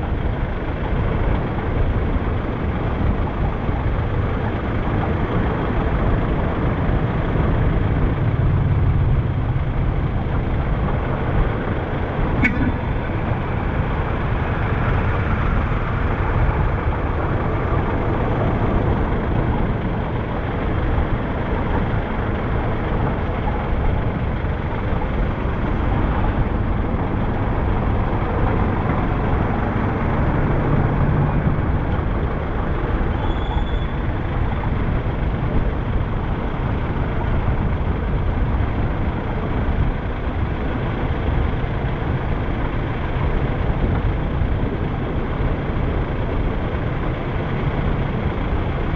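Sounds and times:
buses passing: 0.0 - 48.9
road traffic rumble: 0.0 - 48.9
motorcycles passing: 11.1 - 19.2
brief high tone: 12.4 - 12.9.

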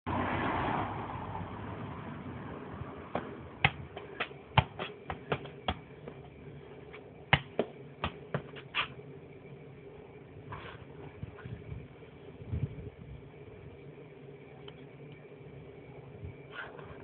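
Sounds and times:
football taps: 3.2 - 6.3, 7.3 - 8.7.

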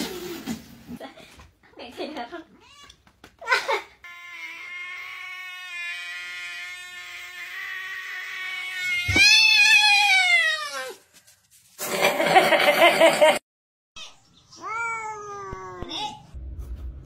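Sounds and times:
cat yowling: 4.1 - 11.0.

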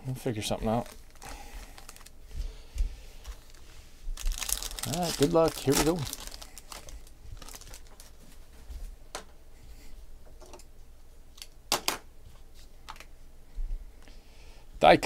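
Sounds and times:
foil wrapper crinkling: 0.5 - 2.2, 3.2 - 8.2
trading cards rustling: 0.6 - 2.2, 3.2 - 8.2.

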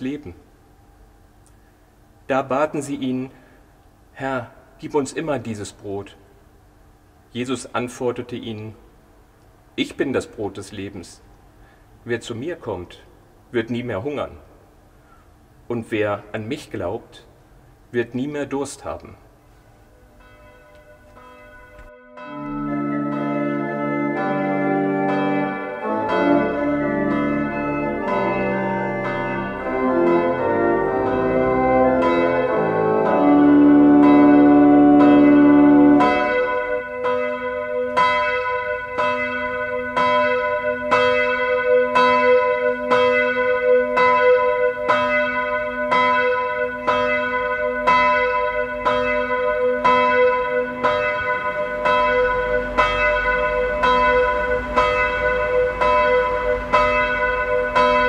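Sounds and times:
church bell tolling: 19.9 - 58.0
organ chords: 20.1 - 44.9, 46.6 - 58.0.

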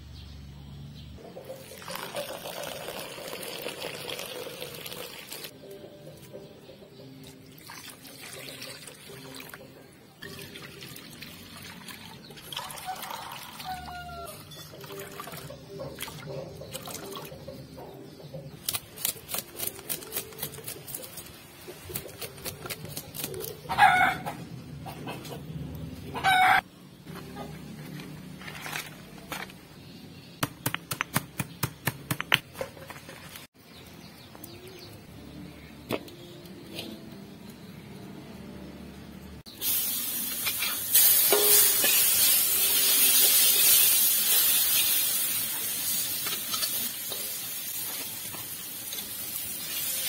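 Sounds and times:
chicken clucking: 23.3 - 27.8.

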